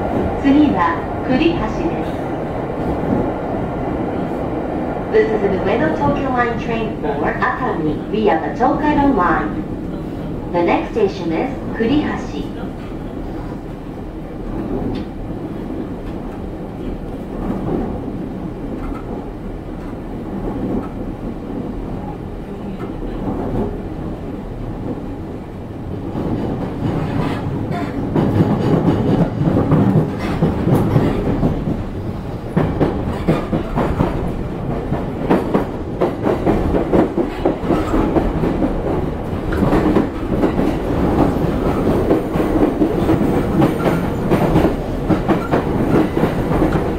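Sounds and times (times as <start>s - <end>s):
train wheels rumbling on rail: 0.0s - 46.9s
wheels clacking over rail joints: 26.2s - 31.9s.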